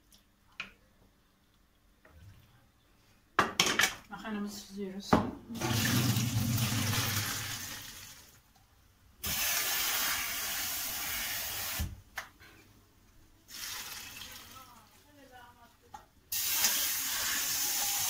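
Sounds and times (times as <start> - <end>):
water and pasta pouring into colander: 5.6 - 8.4, 13.5 - 14.8, 16.4 - 18.0.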